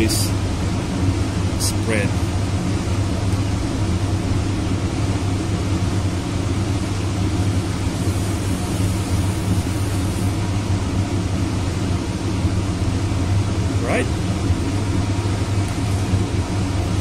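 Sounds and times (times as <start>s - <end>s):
blower humming: 0.0s - 17.0s.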